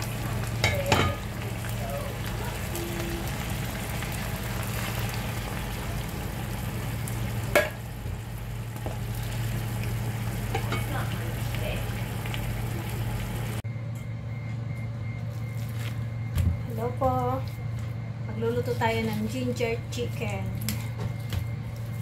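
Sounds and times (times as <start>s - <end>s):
chicken sizzling in a pan: 0.0s - 13.6s
low steady hum: 0.0s - 22.0s.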